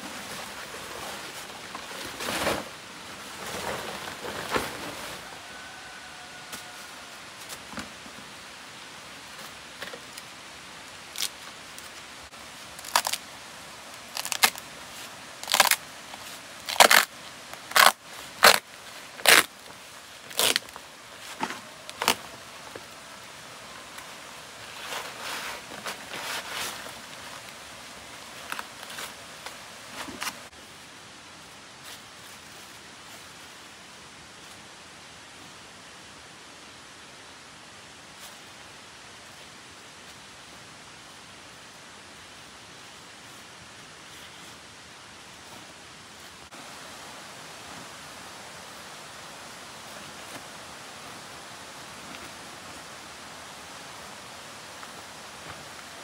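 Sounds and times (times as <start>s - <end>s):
rustling handling sounds: 11.0s - 30.5s.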